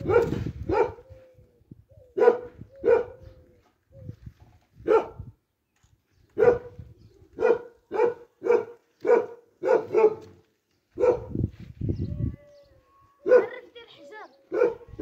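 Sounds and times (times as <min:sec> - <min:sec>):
dog barking: 0:00.0 - 0:01.0, 0:02.2 - 0:03.2, 0:04.8 - 0:05.2, 0:06.4 - 0:06.8, 0:07.4 - 0:10.4, 0:11.0 - 0:11.4, 0:13.2 - 0:13.7, 0:14.5 - 0:15.0.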